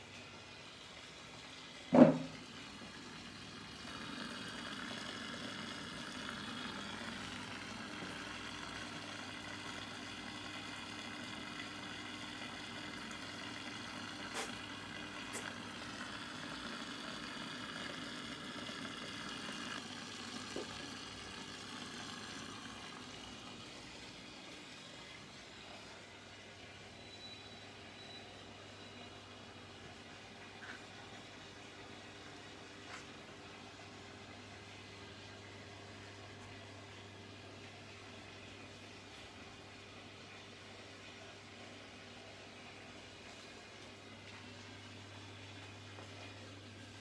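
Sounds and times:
aquarium filter humming and hissing: 0.0 - 47.0
sharp knock: 1.9 - 2.3.

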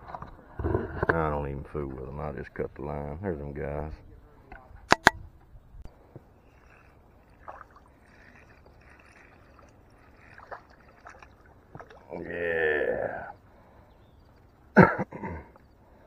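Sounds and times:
drawn-out pitched call: 6.3 - 11.4, 12.0 - 13.5
fish splashing at surface: 6.6 - 12.1.

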